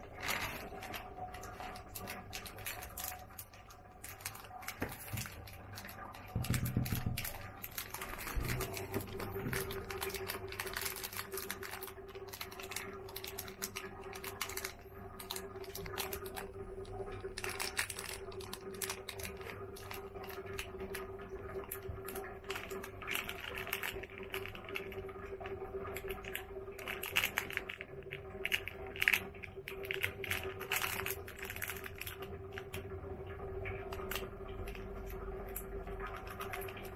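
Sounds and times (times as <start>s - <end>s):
steady hum: 0.0s - 26.8s
plastic wrapper crinkling: 0.0s - 36.9s.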